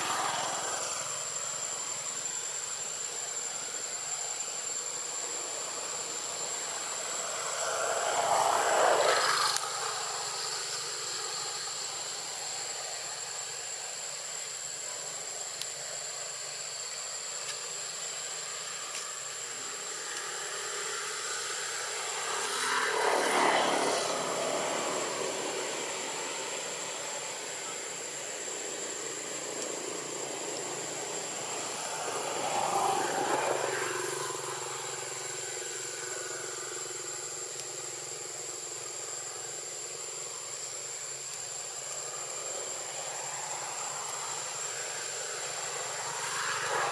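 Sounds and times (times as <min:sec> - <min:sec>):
steady high-pitched whine: 0:00.0 - 0:46.9
distant vehicles passing: 0:06.6 - 0:12.1, 0:20.3 - 0:28.0.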